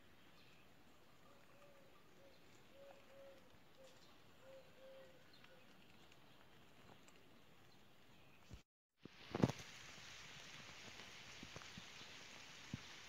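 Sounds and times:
dove cooing: 1.3 - 5.6
outdoor background hiss: 7.8 - 13.0.

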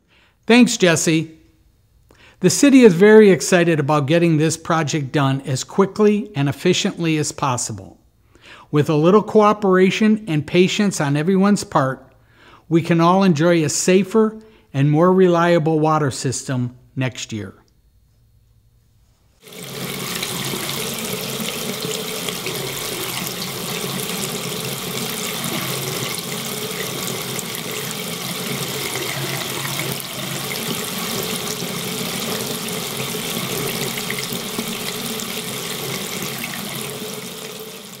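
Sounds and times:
faucet running into sink: 19.4 - 38.0.

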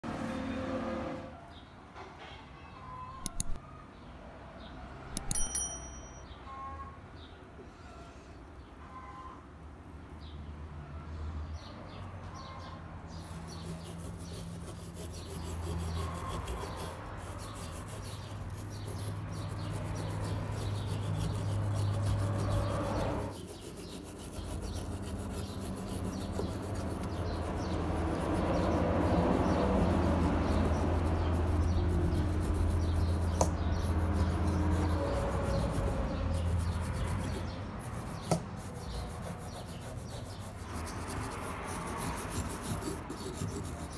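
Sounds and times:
wire brush scrubbing metal: 13.1 - 43.9.

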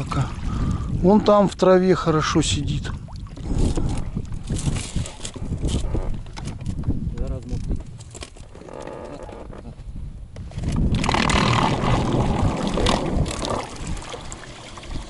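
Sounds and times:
water splashing around a boat: 0.0 - 1.6, 2.4 - 6.9, 10.5 - 15.0.

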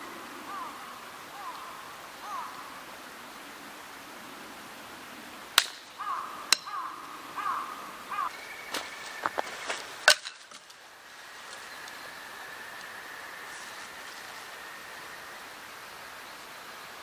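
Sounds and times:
river rushing: 0.0 - 17.0
dry stick snapping: 5.6 - 6.8, 8.7 - 10.8
bird chirping: 5.9 - 17.0.

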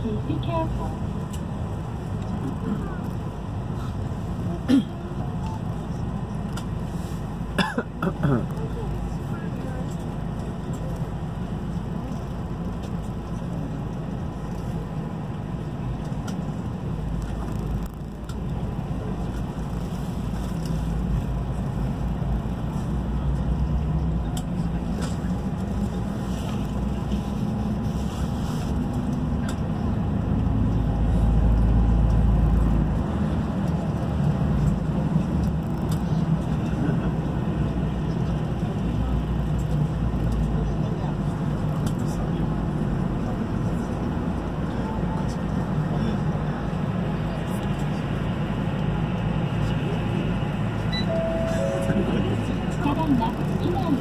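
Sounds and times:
bus engine and road rumble: 0.0 - 54.0.

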